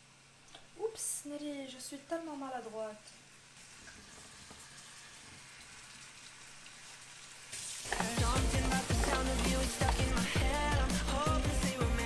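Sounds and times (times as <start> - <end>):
dumplings sizzling in frying pan: 0.0 - 11.2
pop music with singing: 7.9 - 12.0.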